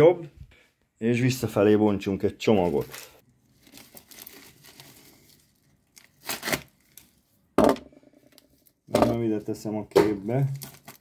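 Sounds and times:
packaging crinkling: 2.6s - 7.3s, 10.4s - 11.0s
packaging ripping: 2.7s - 7.2s, 10.5s - 11.0s.

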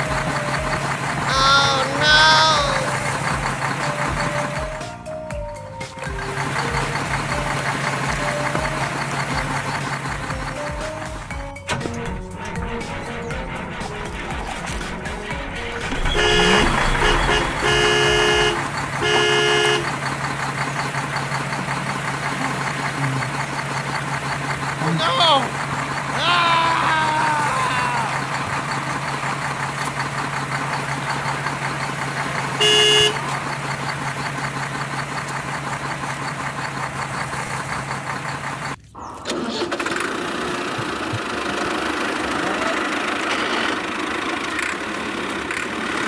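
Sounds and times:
engine idling hum: 0.0s - 46.0s
vehicle horn honking: 12.4s - 20.1s, 32.5s - 33.4s.

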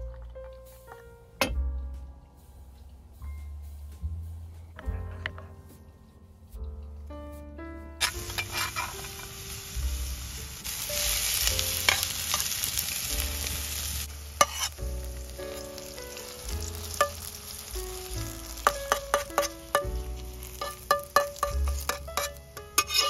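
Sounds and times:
metal spatula scraping a pan: 8.0s - 9.4s, 11.0s - 13.1s, 13.8s - 14.8s, 15.5s - 17.7s, 18.4s - 23.0s
vegetables sizzling in a frying pan: 8.0s - 23.0s.

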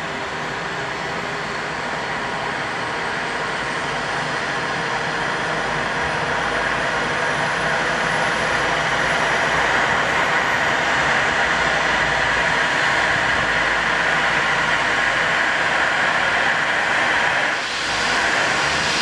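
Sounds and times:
helicopter turbine and rotor noise: 0.0s - 19.0s
high turbine whine rising: 0.1s - 19.0s.

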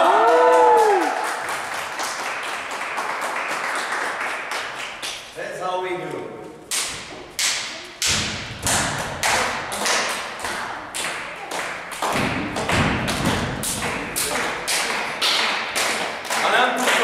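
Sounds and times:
sharp thuds with echo: 6.7s - 16.4s.

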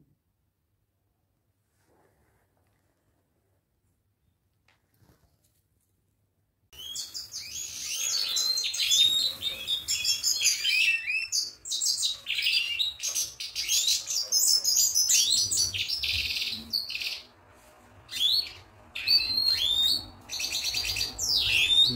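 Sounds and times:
goldfinches chirping and twittering: 6.8s - 17.3s, 18.1s - 21.9s.

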